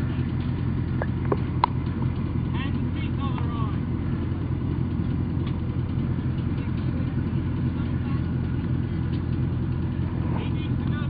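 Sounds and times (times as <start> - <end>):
vehicle engine idling: 0.0 - 11.0
faint voices: 5.6 - 11.0.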